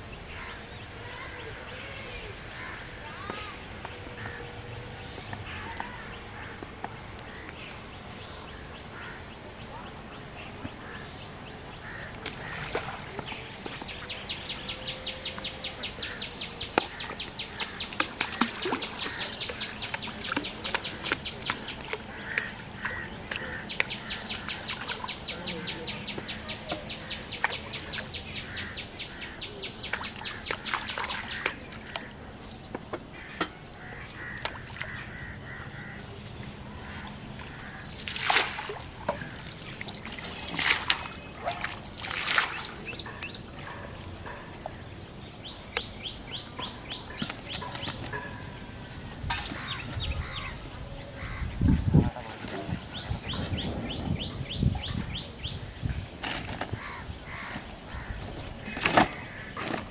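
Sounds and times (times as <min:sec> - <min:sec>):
fish splashing in water: 0:16.0 - 0:25.4, 0:26.1 - 0:32.1, 0:36.9 - 0:43.2.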